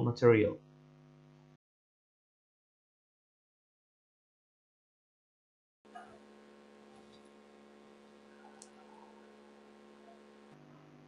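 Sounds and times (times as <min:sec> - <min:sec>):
faint electrical hum: 0:05.9 - 0:11.0
faint clicks: 0:08.3 - 0:09.1.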